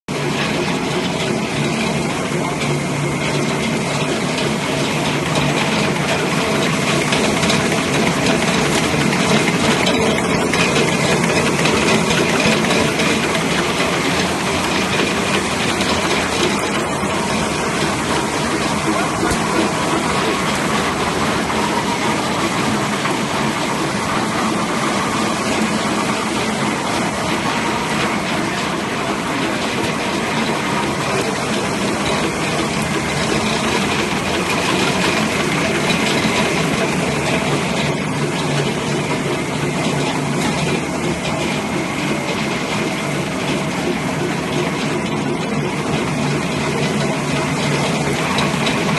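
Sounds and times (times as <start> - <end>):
machine running loudly: 0.0 - 48.9.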